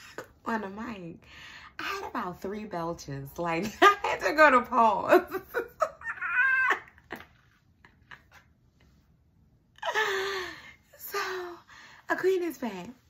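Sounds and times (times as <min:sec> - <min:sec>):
woman laughing: 0:03.6 - 0:09.0, 0:09.8 - 0:10.8.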